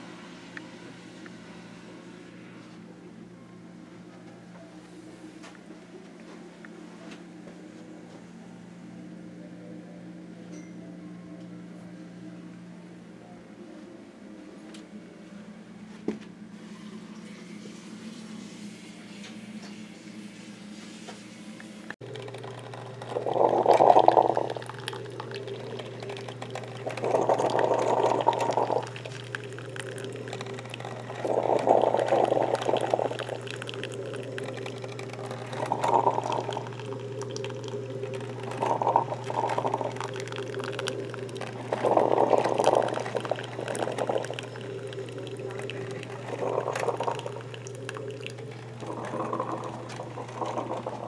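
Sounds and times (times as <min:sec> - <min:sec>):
coffee maker humming: 0:00.0 - 0:03.3, 0:16.1 - 0:51.0
hot water gurgling: 0:22.0 - 0:51.0.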